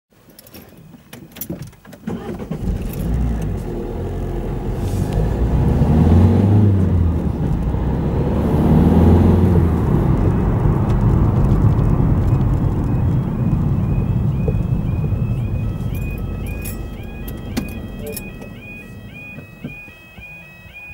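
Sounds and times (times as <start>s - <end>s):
car engine and road rumble: 0.1s - 20.9s
level crossing warning alarm: 12.0s - 20.9s.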